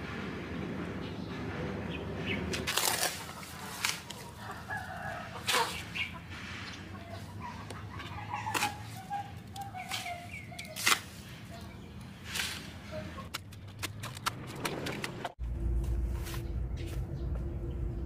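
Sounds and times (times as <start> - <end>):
chickens clucking: 3.0 - 12.1
rooster crowing: 4.4 - 5.5.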